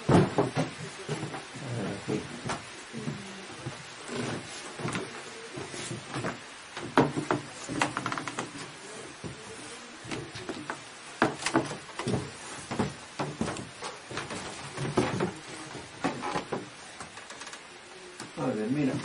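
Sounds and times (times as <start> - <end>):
wooden loom clacking: 10.1 - 17.6.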